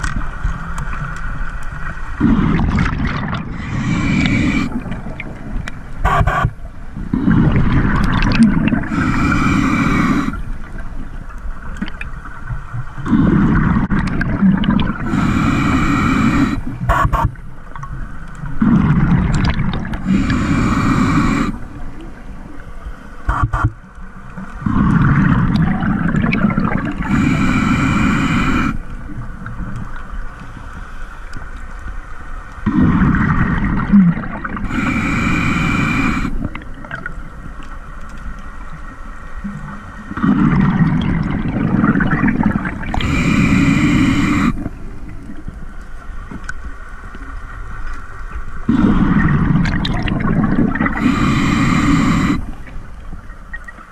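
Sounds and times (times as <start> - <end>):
exhaled bubbles burbling: 2.2 - 6.6, 7.2 - 10.4, 13.0 - 15.2, 18.6 - 20.4, 24.6 - 27.3, 32.6 - 34.8, 40.1 - 45.3, 48.7 - 52.7
regulator hissing inhale: 3.6 - 4.9, 8.9 - 10.6, 15.0 - 17.2, 20.0 - 21.7, 27.0 - 28.9, 34.6 - 36.4, 42.6 - 45.0, 50.8 - 52.7.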